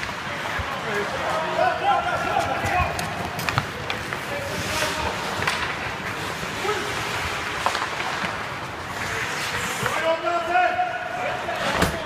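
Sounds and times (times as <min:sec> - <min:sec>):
stick and puck clacks: 0:00.0 - 0:01.4, 0:02.2 - 0:10.2
skates scraping ice: 0:00.0 - 0:12.0.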